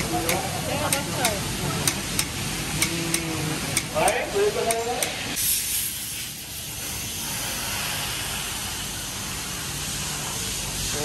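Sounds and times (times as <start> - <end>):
steady hiss: 1.5 - 11.0.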